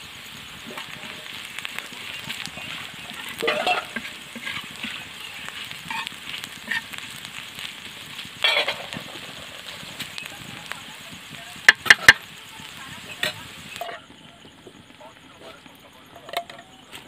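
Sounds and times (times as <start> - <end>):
fish and onions sizzling in oil: 0.0 - 17.0
spatula scraping a pan: 0.6 - 10.3.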